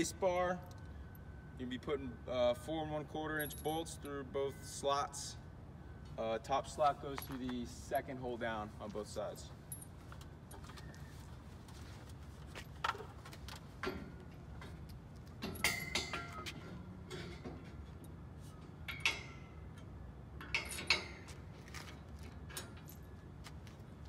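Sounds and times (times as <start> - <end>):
steel bar clanking in brackets: 15.4 - 17.8.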